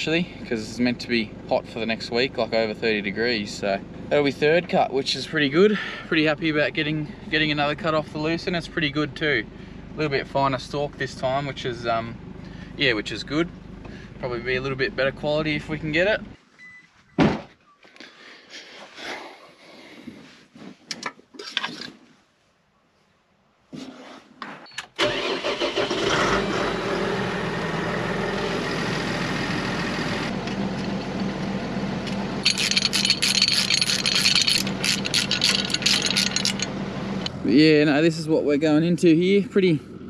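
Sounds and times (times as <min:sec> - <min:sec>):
tractor diesel engine running: 0:00.0 - 0:16.4, 0:25.0 - 0:40.0.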